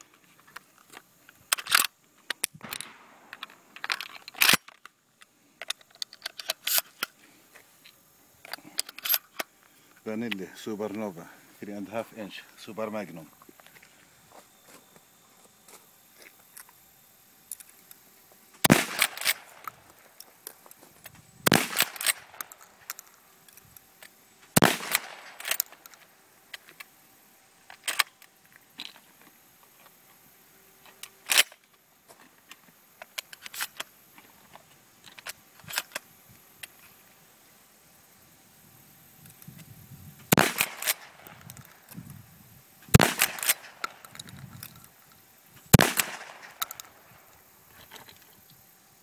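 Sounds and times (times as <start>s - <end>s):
shotgun shots: 18.6s - 19.7s, 21.4s - 22.5s, 24.6s - 25.6s, 40.3s - 41.4s, 42.9s - 44.1s, 45.7s - 47.0s
shotgun pump clicking: 23.9s - 26.9s, 45.8s - 47.0s.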